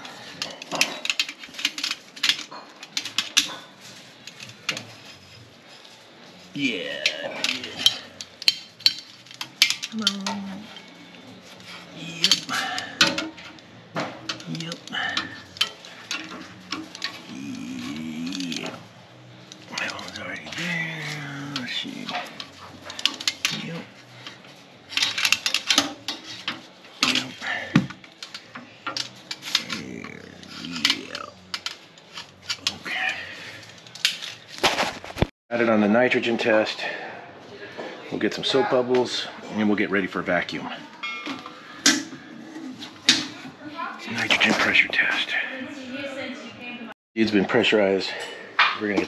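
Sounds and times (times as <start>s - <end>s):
metal tools clinking on metal: 7.0s - 13.6s, 14.2s - 34.5s.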